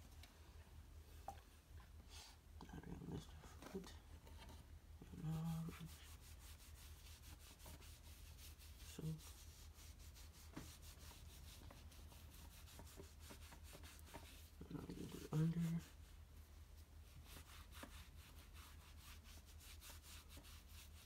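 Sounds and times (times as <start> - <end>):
washcloth scrubbing a foot: 5.2 - 16.2, 16.8 - 21.0.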